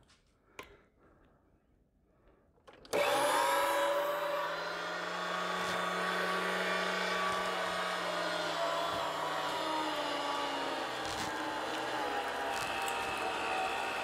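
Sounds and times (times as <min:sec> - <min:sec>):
meat grinder motor whine: 0:02.9 - 0:14.0.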